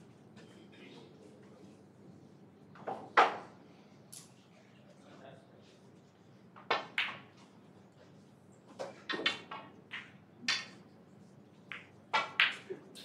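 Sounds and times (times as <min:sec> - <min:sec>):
snooker balls clicking: 0:06.6 - 0:07.6, 0:08.7 - 0:10.8, 0:11.6 - 0:13.0.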